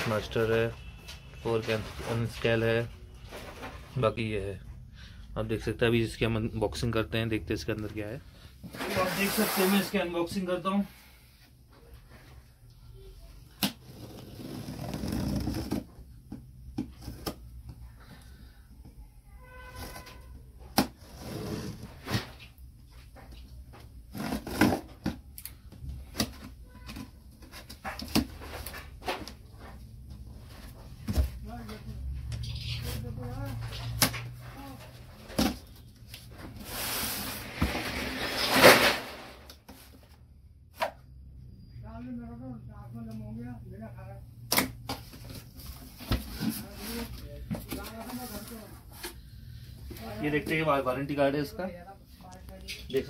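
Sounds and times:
cardboard scraping rustles: 8.6 - 10.1, 36.4 - 40.0, 45.0 - 49.2.

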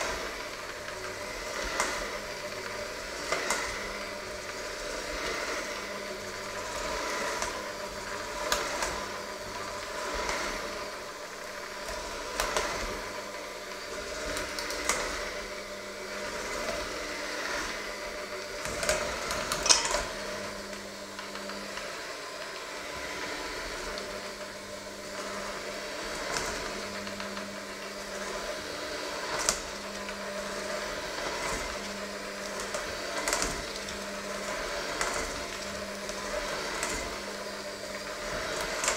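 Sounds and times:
electric hand mixer running: 0.0 - 38.9
beaters knocking metal bowl: 19.6 - 20.1.

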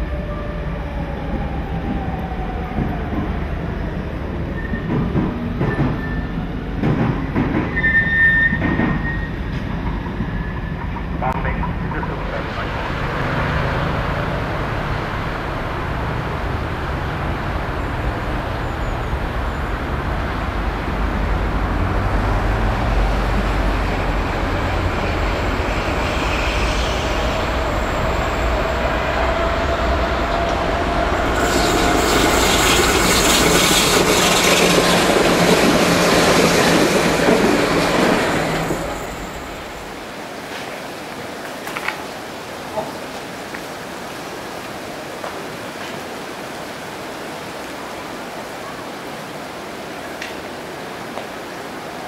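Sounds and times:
train wheels rumbling: 0.0 - 13.1, 13.9 - 40.7
wheels screeching on curve: 7.6 - 10.8, 22.0 - 40.0.

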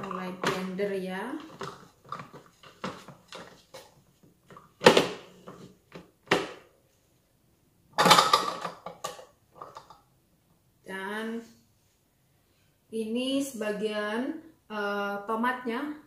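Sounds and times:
plastic bowl knocks and clatter: 0.0 - 0.8, 1.4 - 6.7, 8.0 - 10.0.

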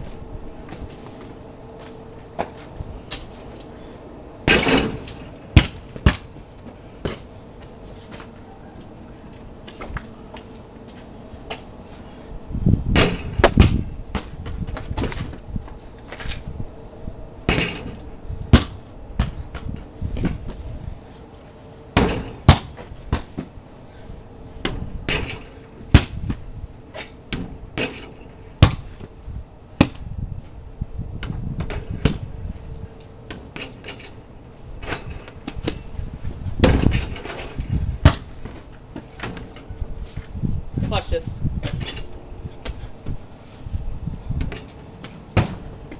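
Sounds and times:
metal chain net clinking: 4.5 - 5.6, 13.0 - 14.7, 17.5 - 18.6, 25.1 - 26.0, 33.6 - 36.2, 36.8 - 39.7
basketball hitting backboard and rim: 4.5 - 6.4, 12.9 - 15.4, 17.5 - 20.6, 22.0 - 23.5, 24.6 - 26.4, 27.3 - 29.1, 31.2 - 32.4, 36.6 - 38.6, 44.4 - 45.8.

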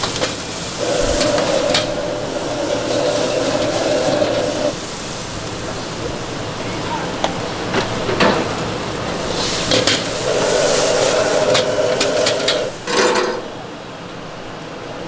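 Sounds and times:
food sizzling: 0.0 - 13.8
metal spatula scraping a wok: 0.8 - 4.8, 9.3 - 13.5.

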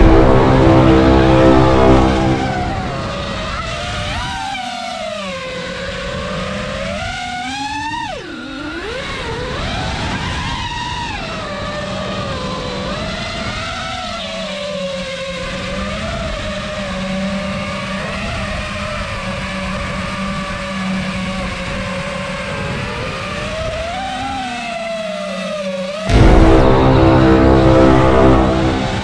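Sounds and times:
quadcopter motors whining: 3.0 - 15.2, 17.4 - 26.1.

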